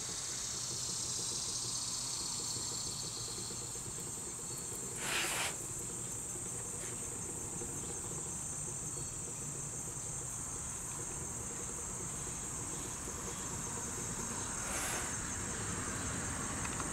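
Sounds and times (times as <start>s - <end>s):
high-pitched insect chorus: 0.0s - 16.9s
soft rush of noise: 14.3s - 16.1s.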